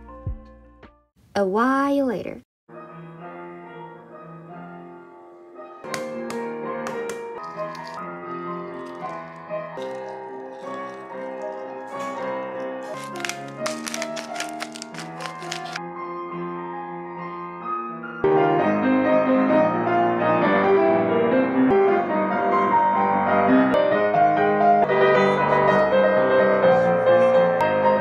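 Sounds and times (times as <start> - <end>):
pepper grinder crunching: 6.9 - 8.0, 8.7 - 15.8.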